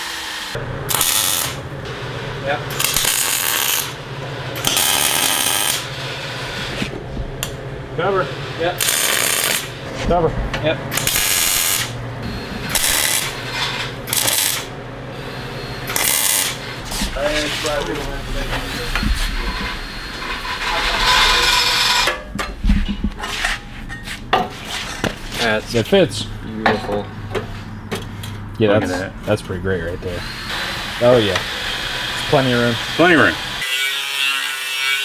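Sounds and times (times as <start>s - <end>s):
welder arc crackling: 0.9s - 1.6s, 2.7s - 4.0s, 8.8s - 9.8s, 10.9s - 12.0s, 14.1s - 14.7s, 15.9s - 22.2s.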